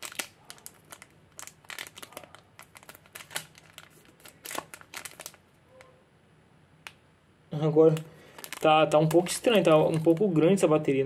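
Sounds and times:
foil bag crinkling: 0.0 - 5.5, 8.0 - 11.0
bubble wrap crinkling: 0.0 - 5.6, 7.9 - 11.0.

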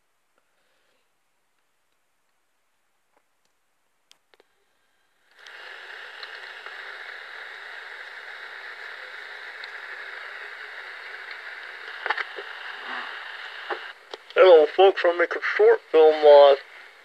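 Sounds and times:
steady recording hiss: 0.0 - 17.0
faint clicks: 5.4 - 6.8, 8.8 - 9.9.

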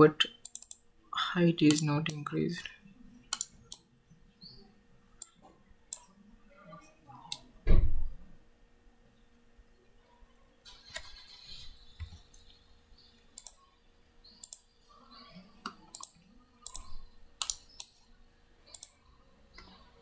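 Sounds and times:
computer mouse clicking: 0.4 - 0.8, 1.7 - 2.2, 3.3 - 3.9, 13.2 - 13.6, 14.4 - 14.6, 15.6 - 18.0, 18.7 - 19.8.

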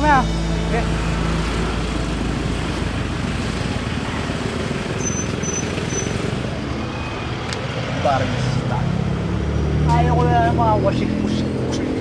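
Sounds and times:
street traffic rumble: 0.0 - 12.0.

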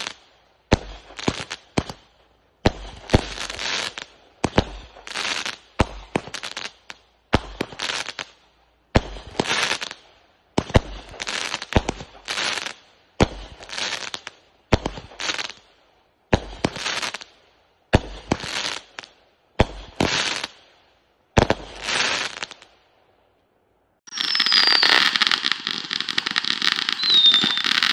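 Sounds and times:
firework crackling: 21.4 - 22.7, 24.1 - 27.9
firework bangs: 24.1 - 27.9.

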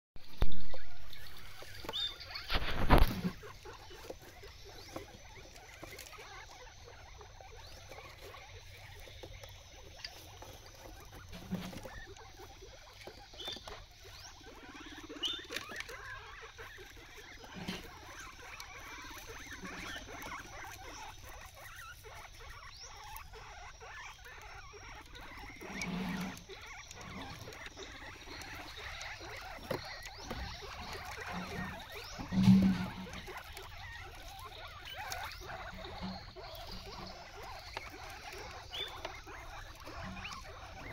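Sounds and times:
guinea pig chewing greens: 0.3 - 40.9.

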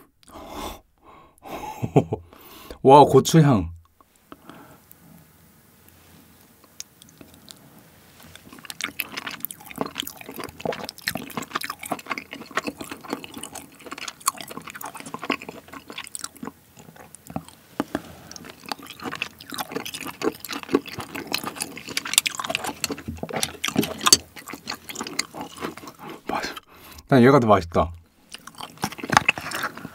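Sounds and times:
wet chewing: 6.3 - 27.1, 28.2 - 29.9.

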